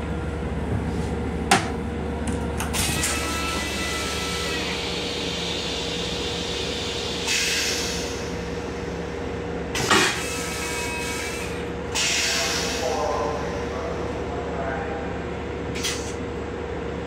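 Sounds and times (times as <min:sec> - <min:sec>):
moving train hum and rumble: 0:00.0 - 0:17.0
toilet flush hiss: 0:05.0 - 0:08.3.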